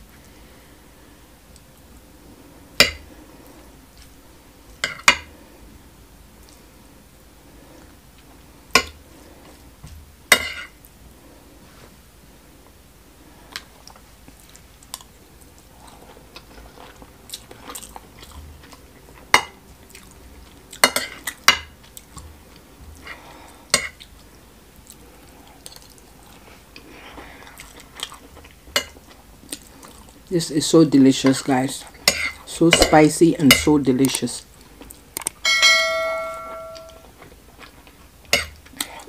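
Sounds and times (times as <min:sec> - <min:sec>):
close-up chewing: 0:13.5 - 0:30.3, 0:34.5 - 0:35.4, 0:37.0 - 0:39.0
metal spoon clinking on plate: 0:35.4 - 0:37.0.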